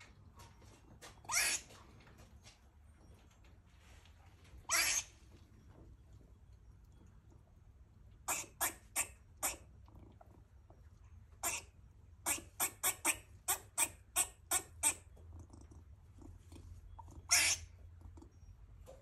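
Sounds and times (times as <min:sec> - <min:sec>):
squirrel barking calls: 0:01.3 - 0:01.7, 0:04.7 - 0:05.2, 0:08.2 - 0:09.8, 0:11.4 - 0:15.1, 0:16.9 - 0:18.5.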